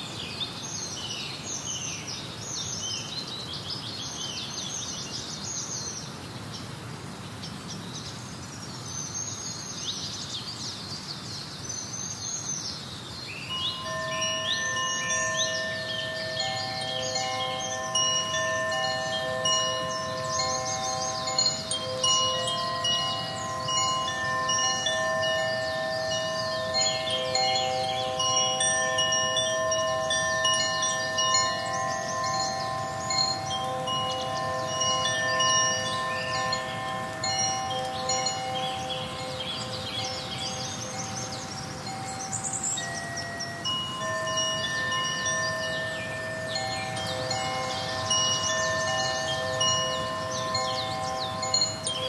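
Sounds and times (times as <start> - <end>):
wind chime runs: 13.4 - 52.0
long held music tones: 13.5 - 52.0.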